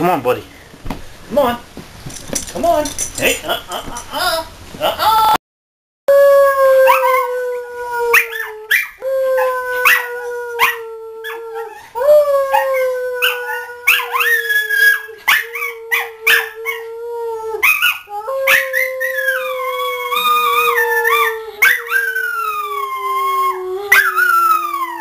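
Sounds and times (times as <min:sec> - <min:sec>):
dog long howl: 0:06.1 - 0:25.0
dogs higher howls and yips: 0:06.5 - 0:16.9, 0:17.6 - 0:25.0.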